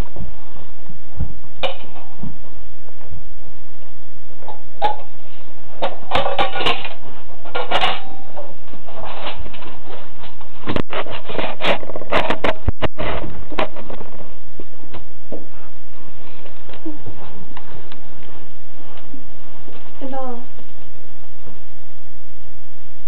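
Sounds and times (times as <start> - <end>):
rubbing and scraping: 4.8 - 14.4.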